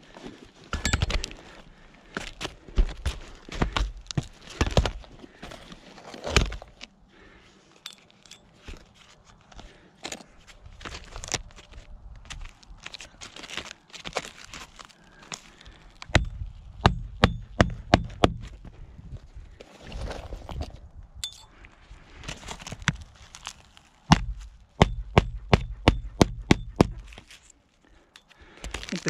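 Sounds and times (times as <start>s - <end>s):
hatchet hammering nails: 16.1s - 18.4s, 24.1s - 27.0s.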